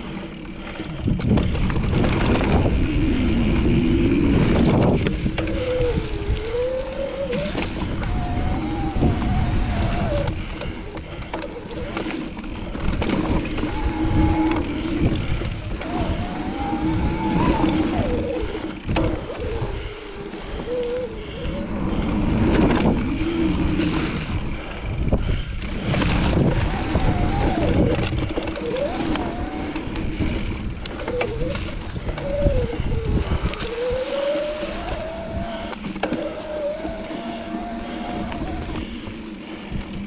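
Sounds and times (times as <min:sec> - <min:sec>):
electric motor whine: 0:00.0 - 0:24.9
wind and tyres rumbling: 0:00.0 - 0:40.0.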